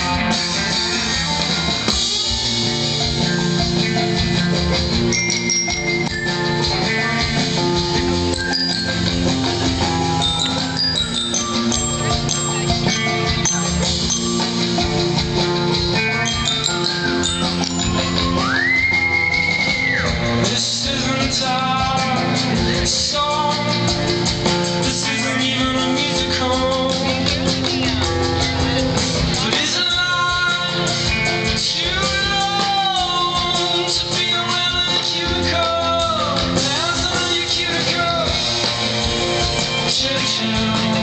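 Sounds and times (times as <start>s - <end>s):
drums: 0.0s - 41.0s
person singing: 15.9s - 38.7s, 39.6s - 41.0s.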